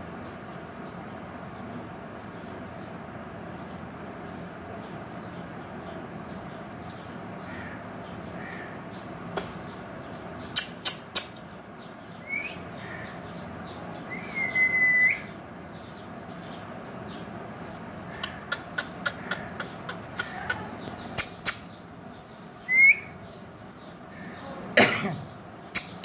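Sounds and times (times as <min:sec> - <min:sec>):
faint high chirping: 0:09.6 - 0:26.0
sharp clicks: 0:10.5 - 0:11.5, 0:20.2 - 0:21.7, 0:25.7 - 0:26.0
parrot calling: 0:18.1 - 0:21.7.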